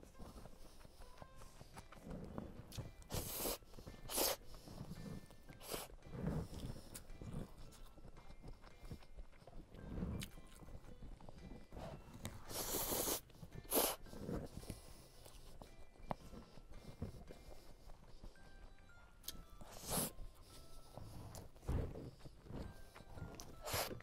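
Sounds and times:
soft chewing: 0.0 - 24.0
slurping noodles: 2.0 - 7.6, 12.3 - 14.5, 19.7 - 20.2.

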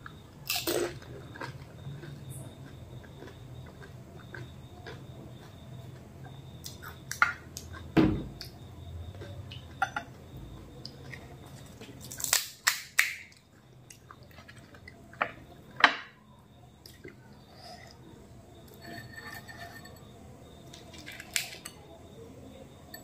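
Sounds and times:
person chewing: 0.5 - 6.0.

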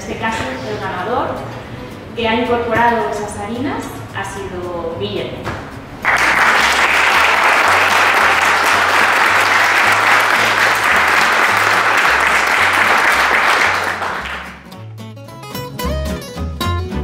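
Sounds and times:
people applauding: 6.0 - 14.7
background music with bass line: 8.2 - 17.0
guitar music: 13.9 - 17.0.

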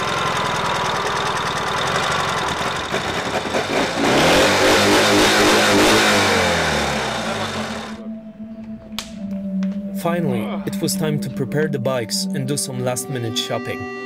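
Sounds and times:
motorcycle engine revving: 0.0 - 8.0.

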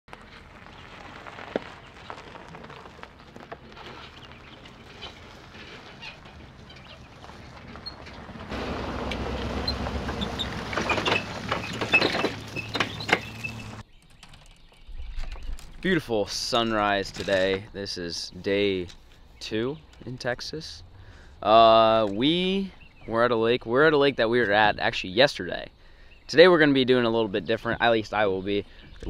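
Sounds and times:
birds chirping: 4.0 - 29.0
low motor hum: 4.2 - 13.8
rushing noise: 8.5 - 11.9.

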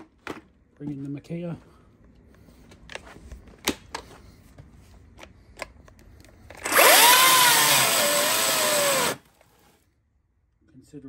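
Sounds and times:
electric chainsaw cutting wood: 6.6 - 9.4.

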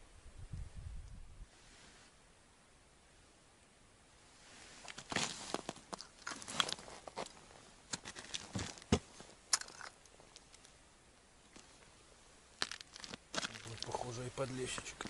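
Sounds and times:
winter jacket rustling: 4.3 - 9.4
boots crunching on icy snow: 4.8 - 9.7, 12.6 - 15.0.

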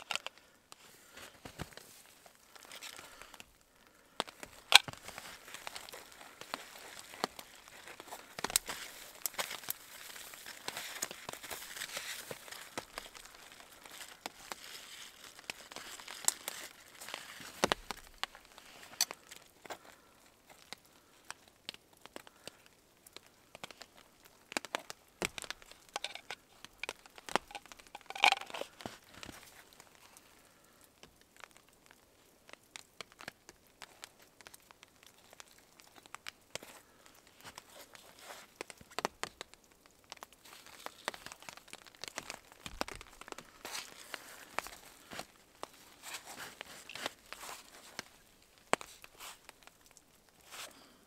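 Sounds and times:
handling clicks and rustles: 4.2 - 20.8, 23.5 - 29.8.

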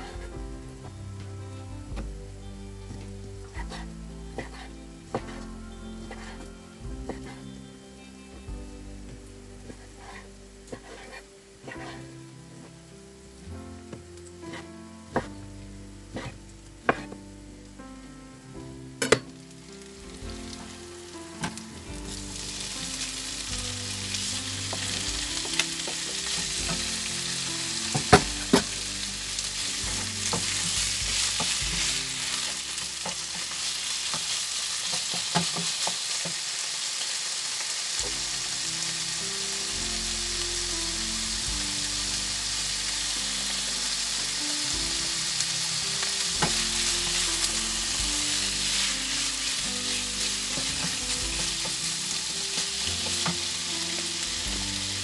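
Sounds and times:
meat and onion sizzling in pan: 0.0 - 17.8, 18.4 - 55.0
wooden spoon stirring: 3.5 - 7.5, 9.7 - 12.2, 16.1 - 17.2, 19.9 - 36.4, 41.7 - 55.0.

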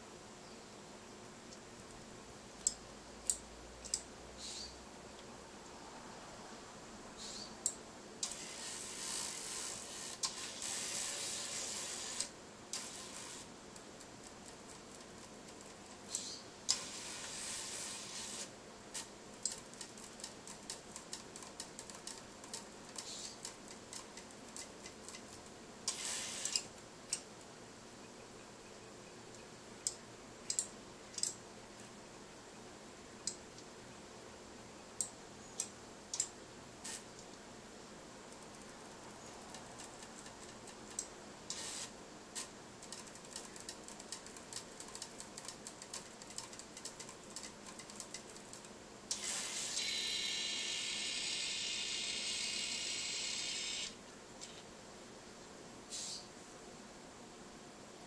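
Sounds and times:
small sharp clicks: 2.6 - 4.1, 29.3 - 31.4, 35.0 - 37.4
robot arm motors hissing: 49.1 - 54.0.

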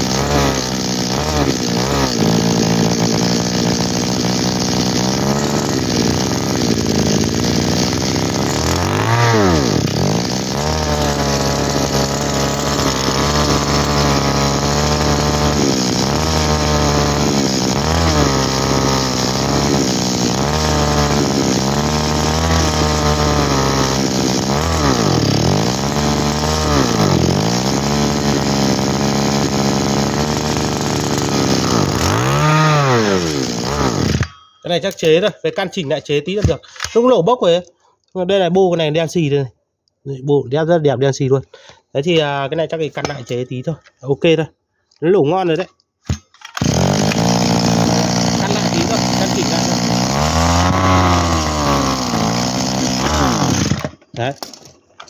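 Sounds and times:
brush-cutter engine running: 0.0 - 34.3, 46.1 - 54.8.

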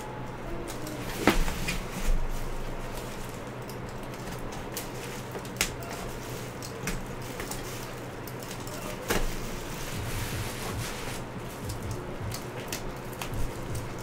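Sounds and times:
low steady hum: 0.0 - 14.0
bubble wrap crinkling: 4.8 - 11.9.

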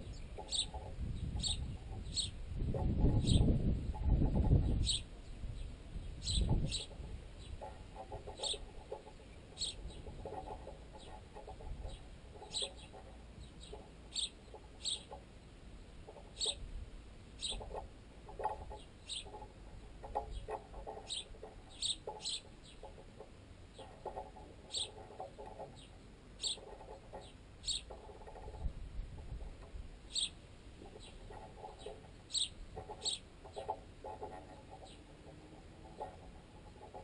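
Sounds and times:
sparrows chirping: 0.0 - 16.6, 17.4 - 28.6, 30.1 - 37.0
birds pecking at bread: 17.4 - 37.0.

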